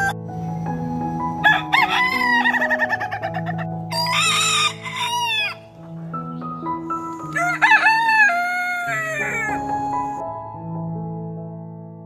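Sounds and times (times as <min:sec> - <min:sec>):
rooster crowing: 0:01.4 - 0:05.7, 0:07.3 - 0:09.7
soft piano notes: 0:04.8 - 0:12.0.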